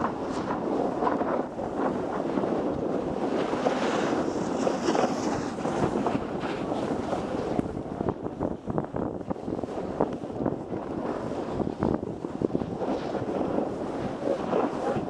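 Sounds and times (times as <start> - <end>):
wind on camera microphone: 0.0 - 15.0
ski edges scraping snow: 3.3 - 7.5, 12.3 - 15.0.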